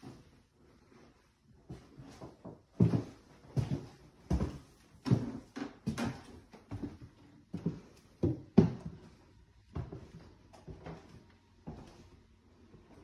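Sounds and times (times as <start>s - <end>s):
footsteps on wooden floorboards: 1.7s - 12.1s.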